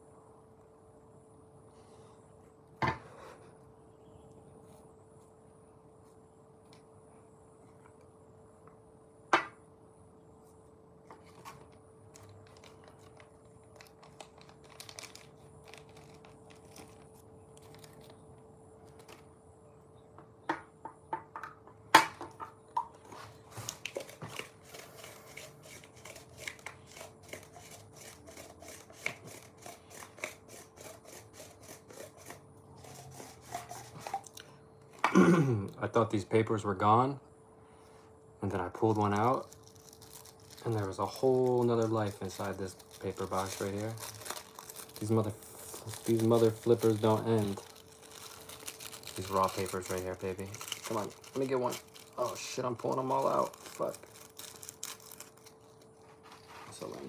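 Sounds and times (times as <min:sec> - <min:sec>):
faint steady hum: 0:00.0 - 0:57.0
paper rustling and crinkling: 0:11.1 - 0:19.3, 0:38.8 - 0:57.0.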